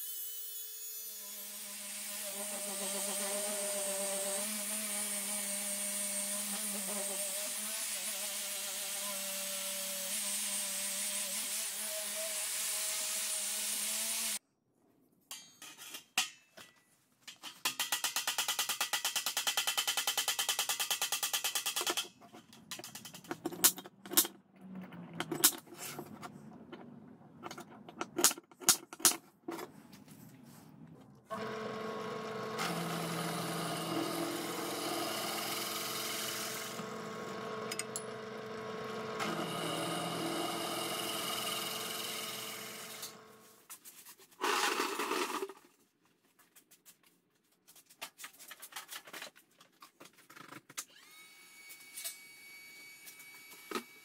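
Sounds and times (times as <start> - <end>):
drill press drilling steel: 31.3 - 43.4.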